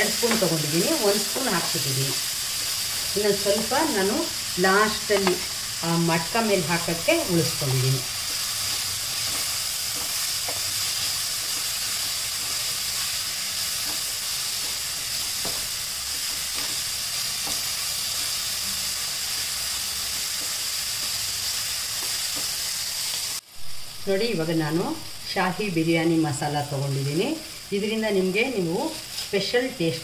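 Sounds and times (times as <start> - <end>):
vegetables sizzling in oil: 0.0 - 30.0
spatula scraping and tapping pan: 8.3 - 10.7, 15.4 - 17.7.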